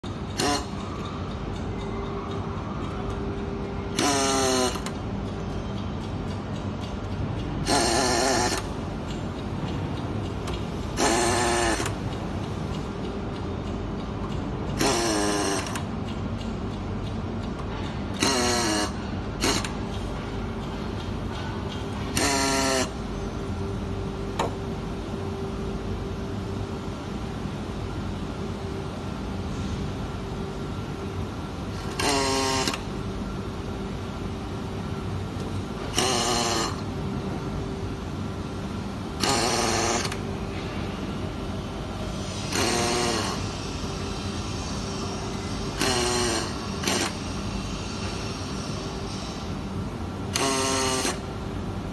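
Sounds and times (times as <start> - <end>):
steady workshop hum: 0.0 - 51.9
pneumatic screwdriver whine: 0.4 - 0.8, 3.9 - 4.9, 7.6 - 8.7, 11.0 - 12.0, 14.8 - 15.9, 18.1 - 19.8, 22.1 - 23.0, 31.7 - 32.9, 35.8 - 36.8, 39.2 - 40.2, 42.2 - 49.6, 50.3 - 51.4.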